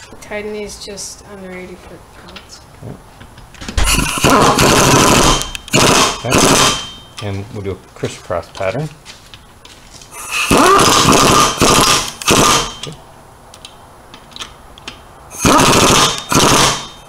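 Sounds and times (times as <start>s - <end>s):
air impact wrench hammering: 3.8s - 7.2s, 10.2s - 12.9s, 15.3s - 17.0s.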